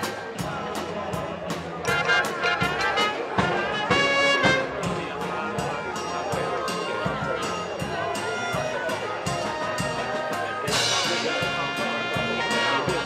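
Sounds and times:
sharp percussion strikes: 0:00.0 - 0:13.0
marching band playing: 0:01.8 - 0:13.0
brass and woodwinds holding notes: 0:01.9 - 0:04.9, 0:11.1 - 0:13.0.

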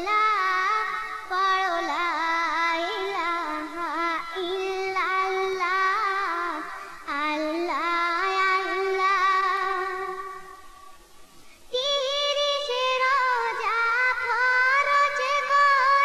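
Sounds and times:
woman singing devotional song: 0:00.0 - 0:10.9, 0:11.6 - 0:16.0.

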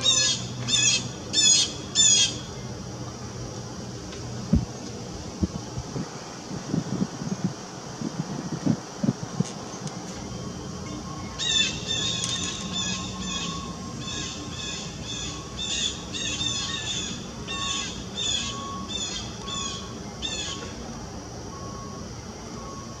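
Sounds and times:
bird harsh high calls: 0:00.0 - 0:02.5, 0:11.2 - 0:20.6.

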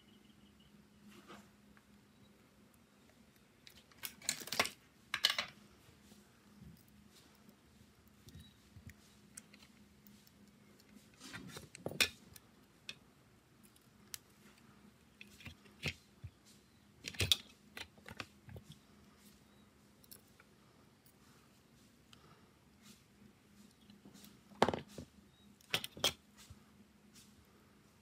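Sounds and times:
light clicks and taps of tools: 0:06.6 - 0:19.4, 0:20.0 - 0:21.2.

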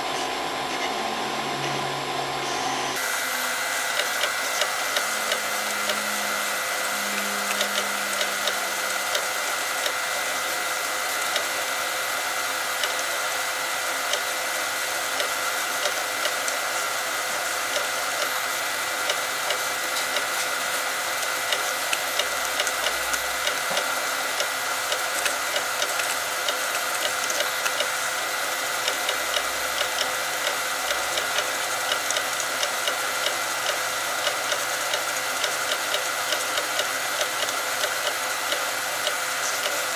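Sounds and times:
vinyl cutter motor whine: 0:00.0 - 0:39.9
small mechanical clicks: 0:28.8 - 0:39.9.

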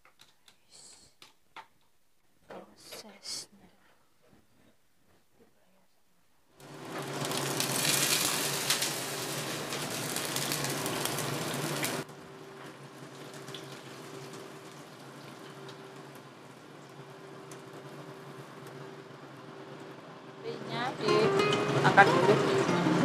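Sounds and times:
fish frying in hot oil: 0:06.6 - 0:18.6.

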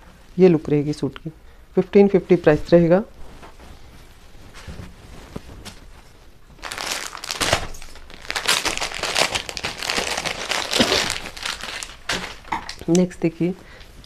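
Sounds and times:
packaging crinkling and rustling: 0:03.2 - 0:14.0.

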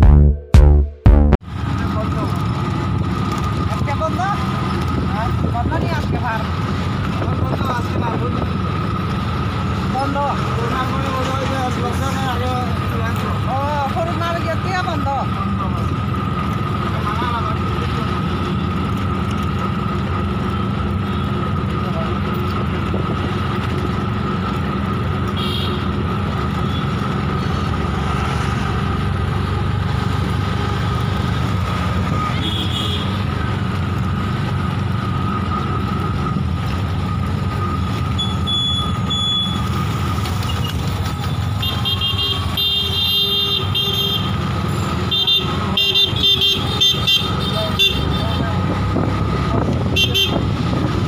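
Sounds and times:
vehicle engine whine: 0:00.0 - 0:51.0
vehicle horns honking: 0:25.3 - 0:26.0, 0:32.2 - 0:33.2, 0:38.2 - 0:39.7, 0:41.6 - 0:48.4, 0:49.9 - 0:50.6.

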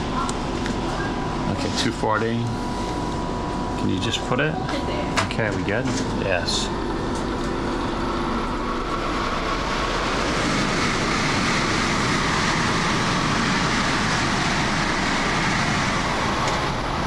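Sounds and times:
train rushing by: 0:05.7 - 0:17.0.

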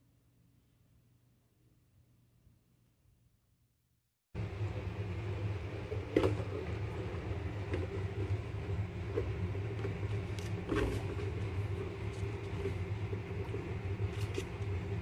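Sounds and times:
low mechanical hum: 0:04.4 - 0:15.0.

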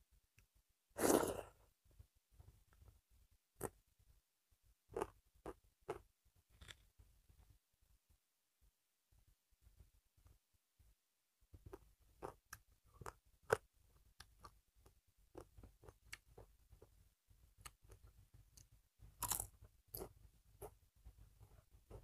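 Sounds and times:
crunchy wafer chewing: 0:04.9 - 0:06.0, 0:19.2 - 0:20.8.

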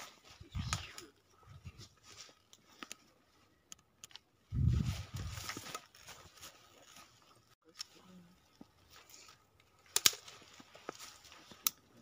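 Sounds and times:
low rumble on microphone: 0:04.5 - 0:05.4
footsteps crunching in snow: 0:04.5 - 0:07.5.

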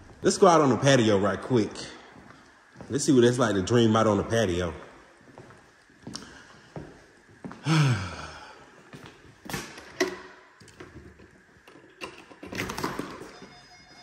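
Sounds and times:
person sighing: 0:07.6 - 0:08.8.

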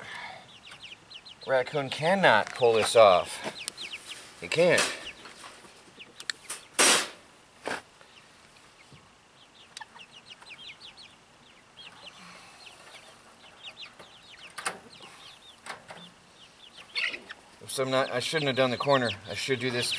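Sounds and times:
chickens clucking softly: 0:08.0 - 0:19.9.

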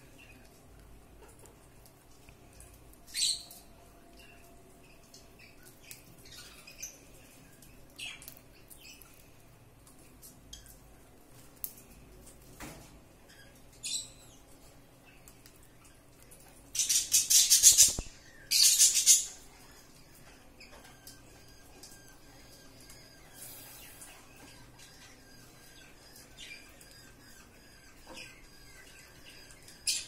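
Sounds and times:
bird beak husking grains: 0:22.4 - 0:24.8.

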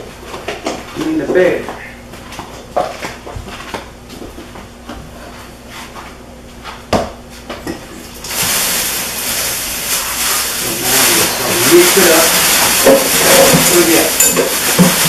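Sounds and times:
faucet water running into sink: 0:08.2 - 0:15.0.

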